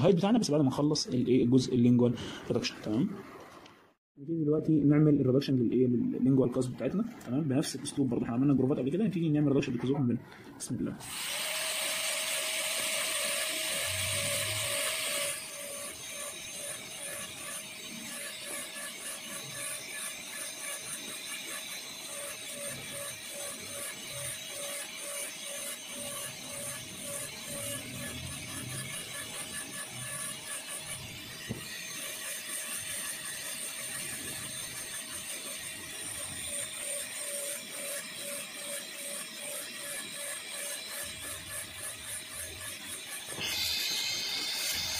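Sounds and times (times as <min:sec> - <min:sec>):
dental drill whining: 0:11.0 - 0:44.9.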